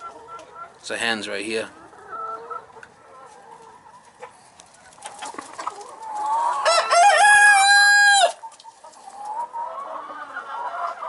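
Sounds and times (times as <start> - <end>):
hens clucking softly: 0.0 - 11.0
rooster crowing: 6.4 - 8.4.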